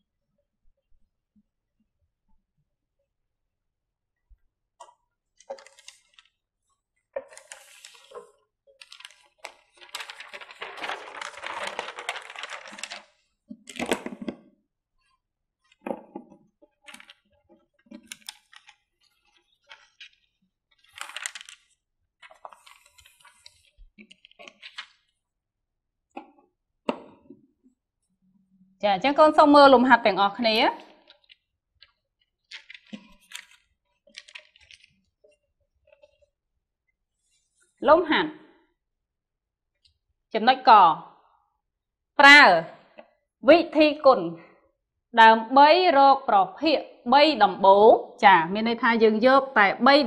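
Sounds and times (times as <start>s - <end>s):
paper sheet rustling and crackling: 5.4s - 6.4s, 7.1s - 14.4s, 15.7s - 25.2s, 30.8s - 36.3s.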